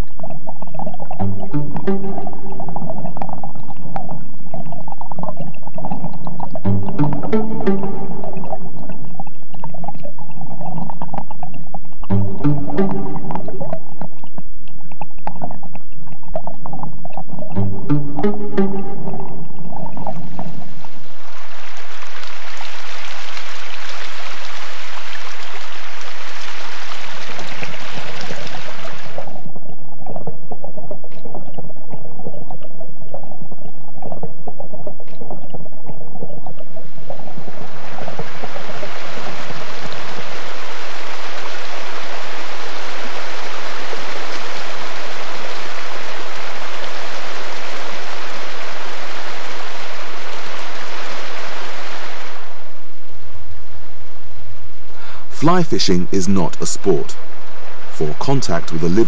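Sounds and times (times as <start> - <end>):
faint underwater clicks: 0.0 - 17.6, 25.1 - 37.3
muffled underwater rush: 0.0 - 59.0
river water rushing: 36.8 - 53.0.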